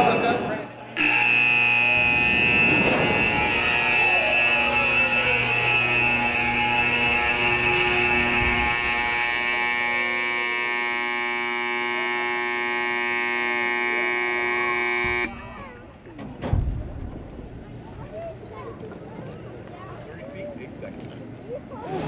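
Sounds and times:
harsh electric warning buzzer: 1.0 - 15.4.

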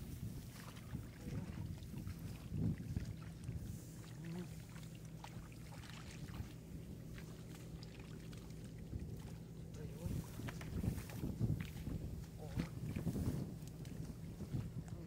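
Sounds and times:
low steady rumble: 0.0 - 15.0
fish splashing in muddy water: 2.1 - 9.4.

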